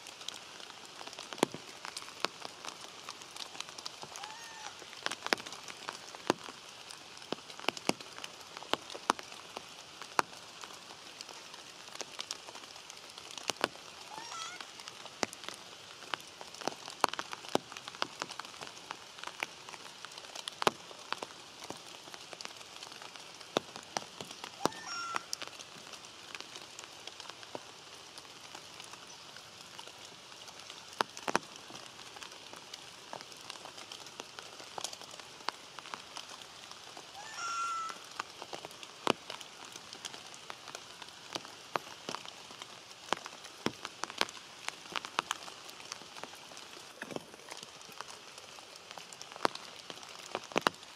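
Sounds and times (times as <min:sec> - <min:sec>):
rain drop ticks: 0:00.0 - 0:50.9
steady rain hissing: 0:00.0 - 0:50.9
brief high-pitched call: 0:24.6 - 0:25.3.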